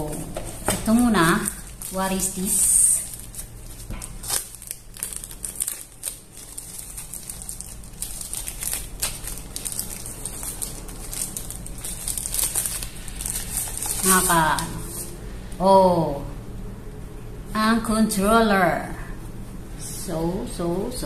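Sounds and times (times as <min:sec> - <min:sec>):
plastic bag crinkling: 0:00.0 - 0:15.2.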